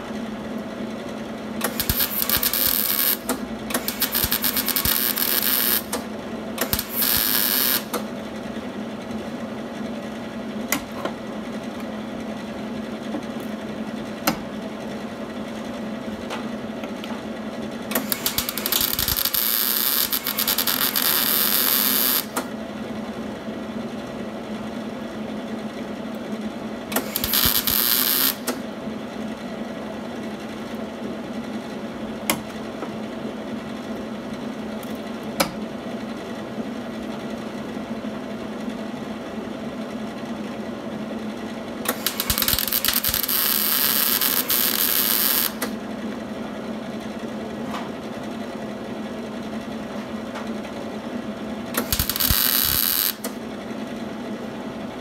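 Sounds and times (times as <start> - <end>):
steady hum: 0.0 - 8.4, 17.9 - 22.7, 42.0 - 46.1, 51.8 - 53.4
welder arc crackling on sheet steel: 1.6 - 6.0, 6.6 - 8.0, 18.0 - 22.4, 27.0 - 28.6, 41.9 - 45.7, 51.8 - 53.3
sharp clicks: 18.0 - 22.4, 41.9 - 45.7, 51.8 - 53.3.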